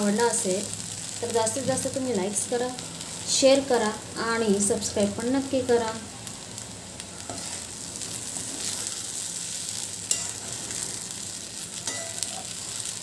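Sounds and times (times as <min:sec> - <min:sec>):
food sizzling in a pan: 0:00.0 - 0:13.0
spatula scraping a pan: 0:07.3 - 0:07.8, 0:08.4 - 0:09.2, 0:10.0 - 0:11.0, 0:11.8 - 0:12.6.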